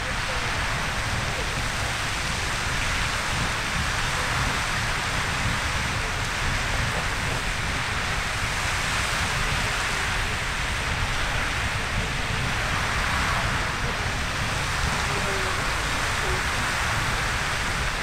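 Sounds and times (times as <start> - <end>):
geyser rushing hiss: 0.0 - 18.0.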